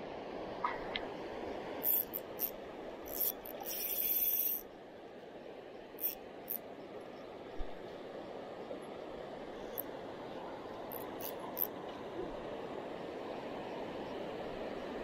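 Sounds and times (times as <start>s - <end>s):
spinning reel being cranked: 1.8s - 4.6s, 6.0s - 6.6s, 10.9s - 11.7s.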